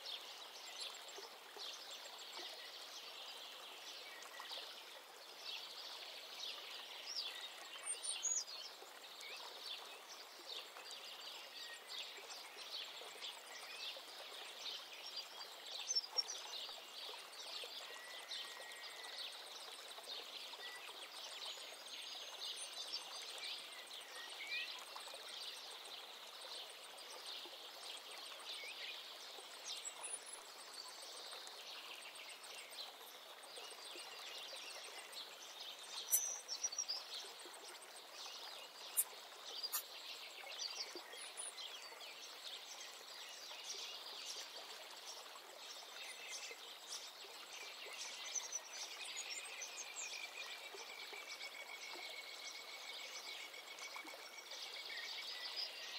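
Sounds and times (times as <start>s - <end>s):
faint outdoor hiss: 0.0s - 55.9s
birds chirping: 36.0s - 36.9s, 38.9s - 39.8s.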